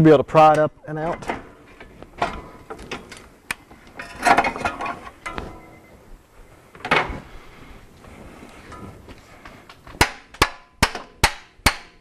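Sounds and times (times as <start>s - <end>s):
ringing metal clatter: 4.0s - 6.0s.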